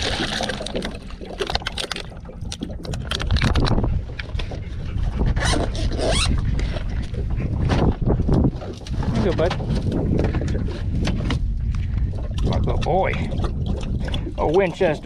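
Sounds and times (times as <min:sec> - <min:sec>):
water poured into plastic bowl: 0:00.0 - 0:03.8
wind rumble on microphone: 0:00.0 - 0:15.0
gear rustling and scraping: 0:03.0 - 0:12.1.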